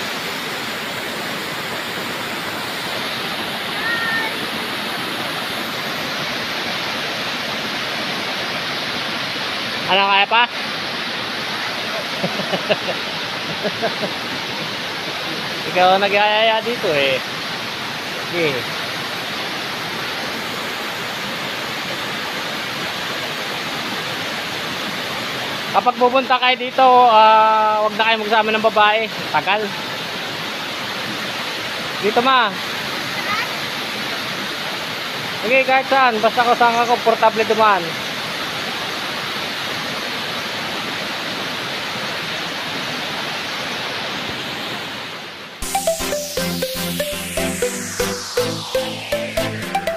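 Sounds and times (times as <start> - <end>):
flowing water rushing: 0.0 - 49.9
electronic dance music: 45.6 - 49.9.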